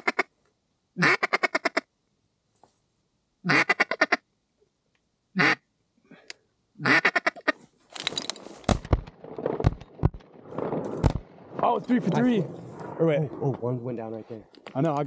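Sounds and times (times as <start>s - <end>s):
duck call quacks: 0.0s - 0.3s, 1.0s - 1.8s, 3.4s - 4.2s, 5.4s - 5.6s, 6.8s - 7.6s
rustling: 7.5s - 15.0s.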